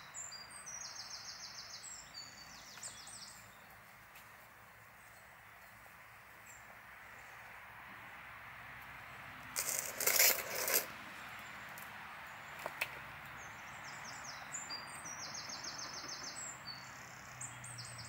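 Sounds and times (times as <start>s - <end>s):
small bird singing: 0.0s - 3.9s, 9.6s - 18.0s
steady outdoor hiss: 0.0s - 18.0s.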